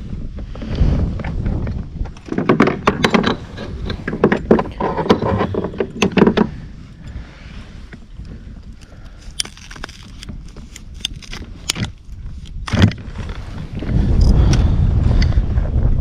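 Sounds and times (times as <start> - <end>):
knocks and thuds on kayak: 1.4 - 6.7.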